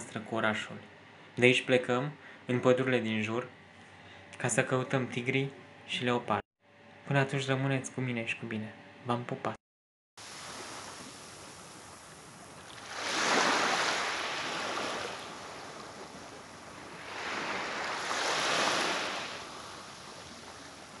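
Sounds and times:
small waves breaking on beach: 10.2 - 21.0.

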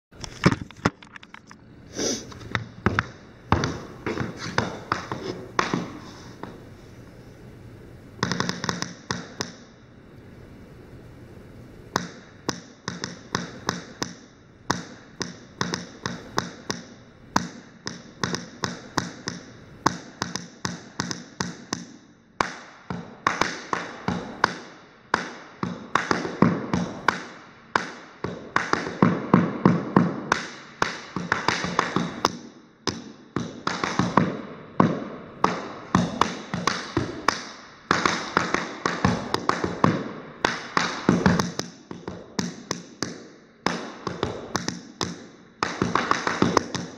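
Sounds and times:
tap shoes on wooden floor: 2.4 - 6.6, 27.8 - 46.9.

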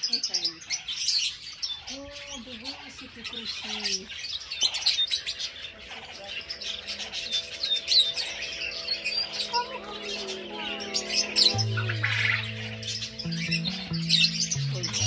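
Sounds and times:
birds chirping busily: 0.0 - 15.0
soft held music notes: 6.6 - 15.0.

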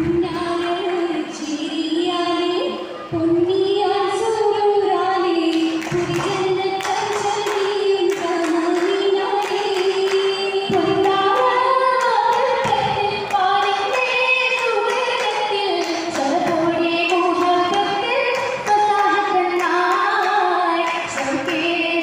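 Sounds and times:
girls singing together: 0.0 - 22.0
hand claps: 5.5 - 21.8.

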